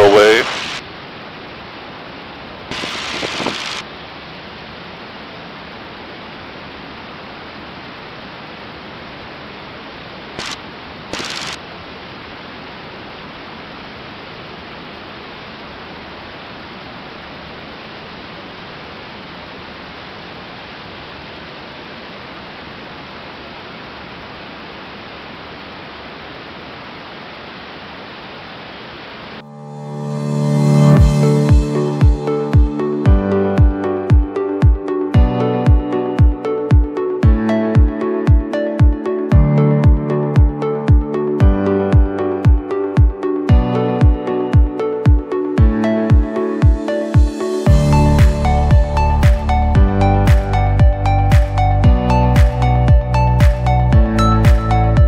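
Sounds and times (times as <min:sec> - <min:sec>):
bursts of hiss: 0:00.0 - 0:00.8, 0:02.7 - 0:03.9, 0:10.3 - 0:11.6.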